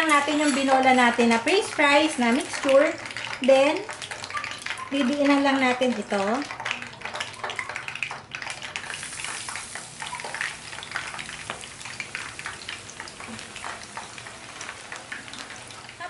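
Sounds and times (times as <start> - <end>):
oil sizzling and crackling: 0.0 - 16.0.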